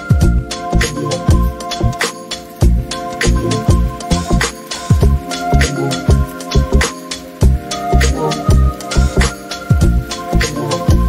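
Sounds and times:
bass drum hits: 2.6s - 4.0s.

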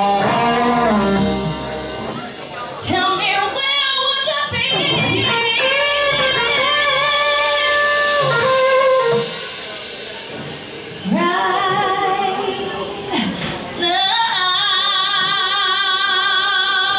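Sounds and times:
electric guitars: 0.0s - 13.8s
drums: 0.0s - 16.9s
woman singing long notes: 2.8s - 9.4s.

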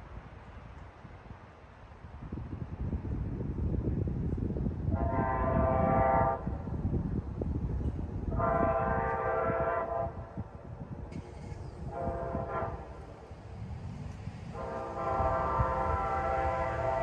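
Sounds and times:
low train rumble: 0.0s - 17.0s
diesel locomotive horn blasts: 4.9s - 6.7s, 8.2s - 10.5s, 11.1s - 17.0s.

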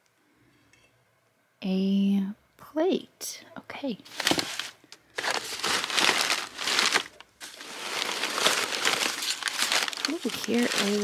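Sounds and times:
paper crinkling and rustling: 4.1s - 11.0s.

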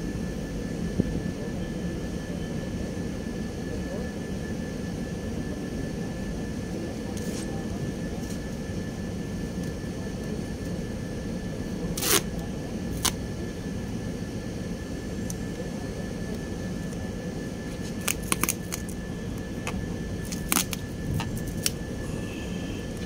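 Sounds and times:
low machinery drone: 0.0s - 23.0s
thin high whine: 14.9s - 23.0s.

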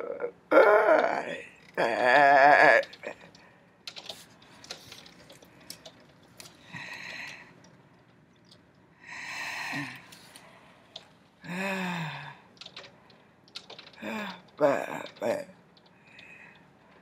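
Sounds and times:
faint scattered clicks: 2.8s - 8.8s, 12.5s - 17.0s.

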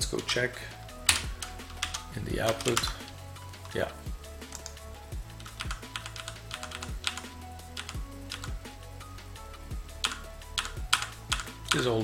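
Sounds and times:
background music: 0.0s - 12.0s
computer keyboard keys pressed: 5.4s - 7.2s, 10.0s - 11.9s.

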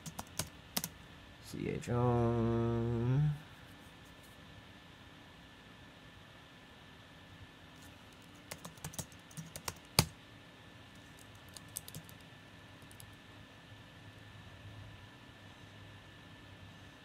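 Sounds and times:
laptop keyboard typing: 0.0s - 0.9s, 8.1s - 10.1s, 11.0s - 12.2s, 12.8s - 13.2s.

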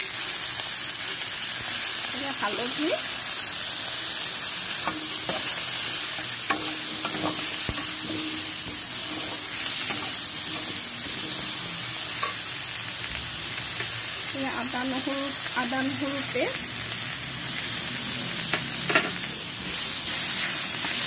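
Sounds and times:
oil sizzling in a frying pan: 0.0s - 21.0s
metal spatula stirring: 4.8s - 12.6s.

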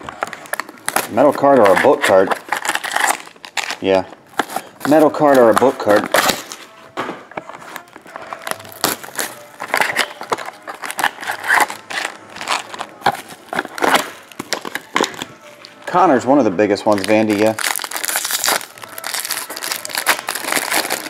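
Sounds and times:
plastic wrap crinkling: 7.4s - 16.0s, 16.8s - 21.0s.

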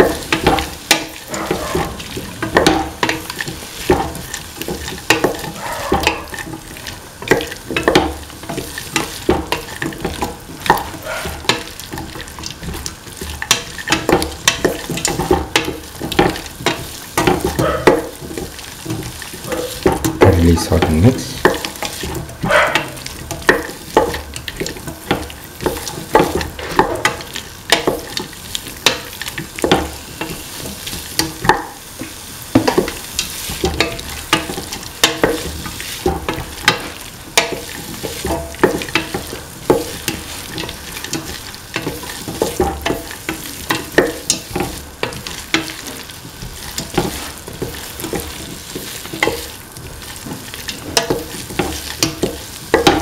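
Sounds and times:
vegetables sizzling: 0.0s - 53.0s
spatula scraping metal pan: 1.1s - 6.5s.

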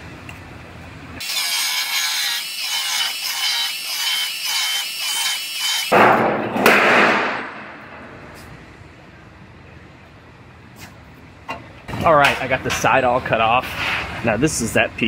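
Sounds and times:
power saw cutting sheet metal: 1.2s - 6.0s.

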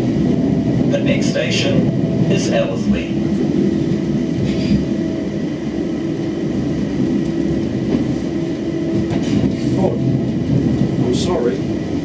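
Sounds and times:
train rumbling: 0.0s - 12.0s.

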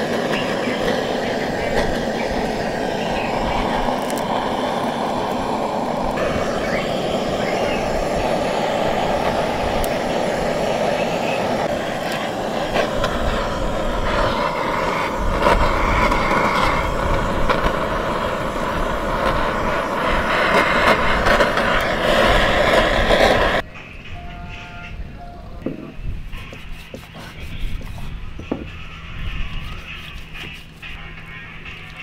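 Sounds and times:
blowtorch roaring: 0.0s - 24.0s.

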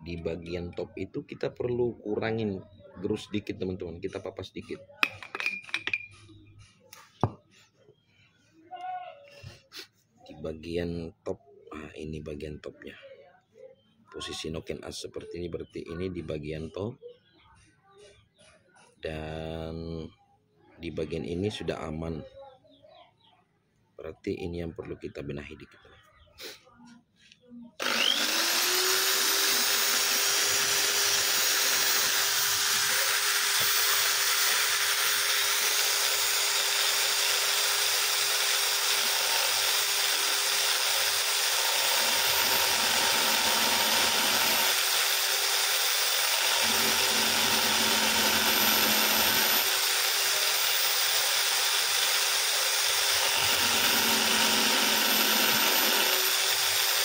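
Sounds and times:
electric drill running: 27.8s - 57.0s
metal grinding on abrasive wheel: 27.8s - 57.0s.

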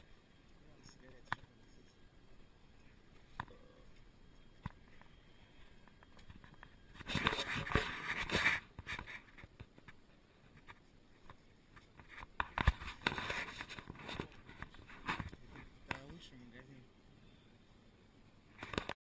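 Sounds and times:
clothing rustling on microphone: 4.8s - 15.8s.

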